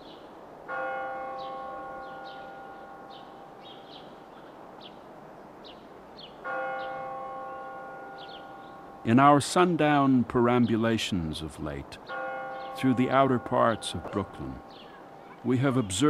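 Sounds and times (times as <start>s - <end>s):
small birds chirping: 0.0s - 0.3s, 1.4s - 7.0s, 8.1s - 8.8s, 12.0s - 16.0s.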